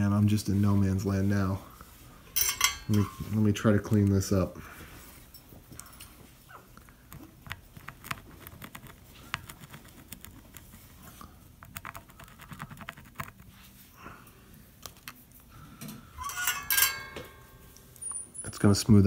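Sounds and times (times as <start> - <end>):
rosin clicking and scratching: 6.7 - 13.8, 14.8 - 15.4.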